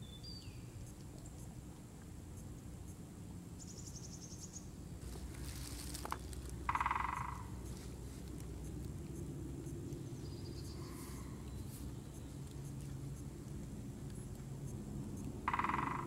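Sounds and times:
small bird chirp: 0:00.0 - 0:01.5, 0:03.6 - 0:04.7, 0:09.2 - 0:12.9
woodpecker drumming on wood: 0:06.0 - 0:16.0
high rapid bird trill: 0:06.7 - 0:07.8, 0:15.4 - 0:16.0.

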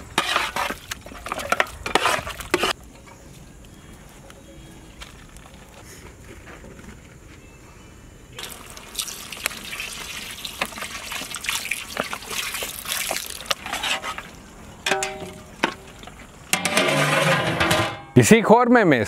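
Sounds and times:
spatula scraping a pot: 0:00.0 - 0:02.8, 0:13.6 - 0:14.3
thick gravy sloshing and squelching: 0:08.4 - 0:14.5.

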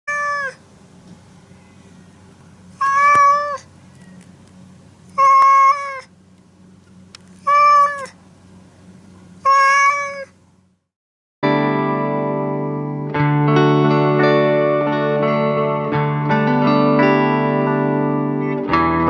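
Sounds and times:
cat meowing: 0:00.1 - 0:00.6, 0:02.8 - 0:03.7, 0:05.1 - 0:06.1, 0:07.4 - 0:08.2, 0:09.4 - 0:10.4.

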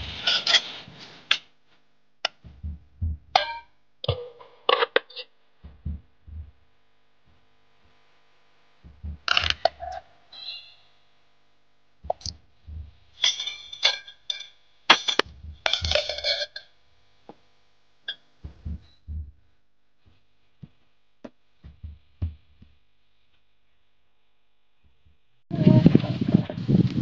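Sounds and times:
metal plate tapping on pot: 0:03.4 - 0:04.8.

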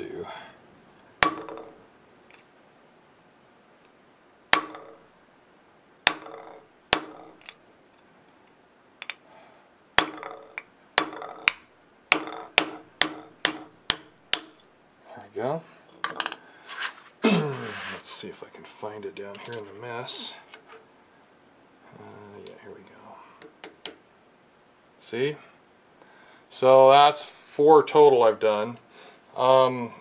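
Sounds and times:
hammer striking metal: 0:10.0 - 0:14.6.

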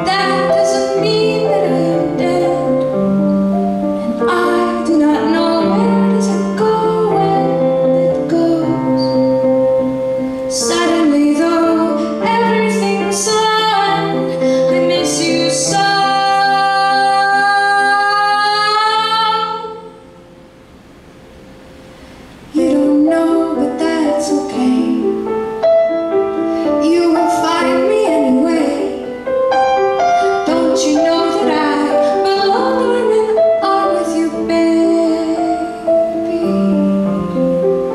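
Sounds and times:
woman singing: 0:00.0 - 0:03.3, 0:04.0 - 0:09.6, 0:10.4 - 0:20.0, 0:22.5 - 0:25.3, 0:26.6 - 0:37.6
grand piano: 0:00.0 - 0:37.9.

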